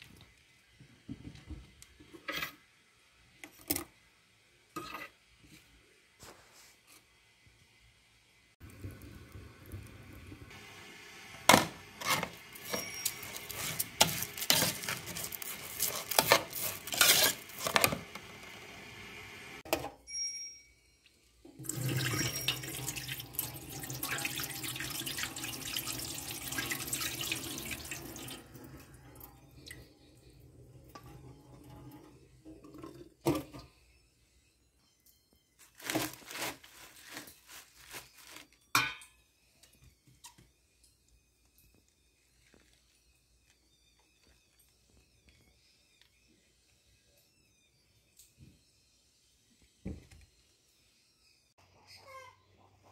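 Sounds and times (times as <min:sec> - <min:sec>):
metal spoon stirring rice in pot: 0:12.0 - 0:18.1
water pouring into metal sink: 0:21.6 - 0:29.9.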